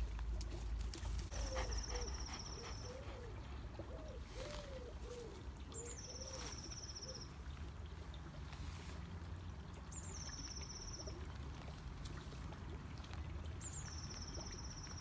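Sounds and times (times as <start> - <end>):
pigeon cooing: 1.3 - 6.4.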